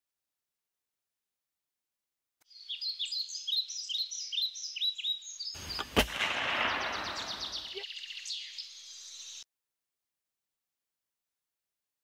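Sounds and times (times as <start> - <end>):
songbird chirping: 2.4 - 9.5
gunshot crack: 5.6 - 7.8.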